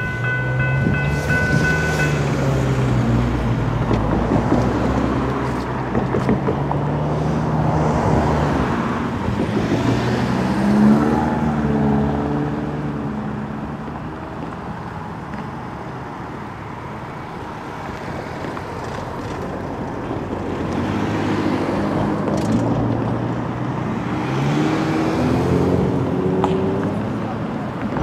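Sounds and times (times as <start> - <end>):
vehicle engine and rolling rumble: 0.0 - 28.0.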